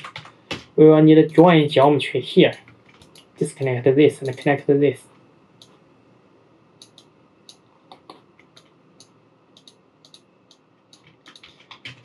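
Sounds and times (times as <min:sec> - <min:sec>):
low room hiss: 0:00.0 - 0:12.0
computer mouse clicks: 0:02.5 - 0:03.3, 0:06.8 - 0:12.0.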